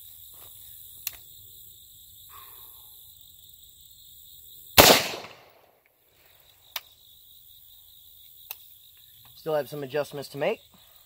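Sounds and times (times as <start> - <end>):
crickets chirring: 0.0 - 11.0
rifle shot: 4.8 - 5.6.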